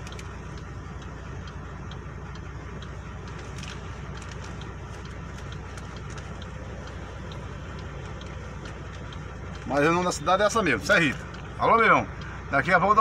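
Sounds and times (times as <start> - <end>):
faint ticks: 0.0 - 10.0
vehicle engine idling: 0.0 - 13.0.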